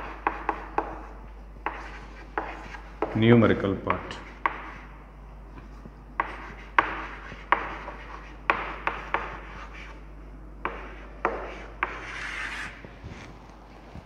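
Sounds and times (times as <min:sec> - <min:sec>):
chalk tapping on chalkboard: 0:00.0 - 0:03.2, 0:03.9 - 0:04.8, 0:06.2 - 0:10.0, 0:10.6 - 0:12.7
chalk scratching on board: 0:01.7 - 0:03.2, 0:06.2 - 0:10.0, 0:10.6 - 0:12.8.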